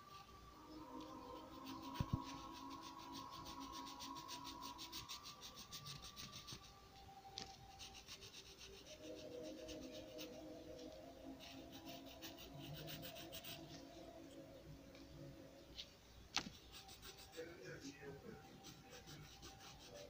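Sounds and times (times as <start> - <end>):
pencil scratching on paper: 1.0 - 6.7, 7.4 - 14.0, 16.4 - 20.0.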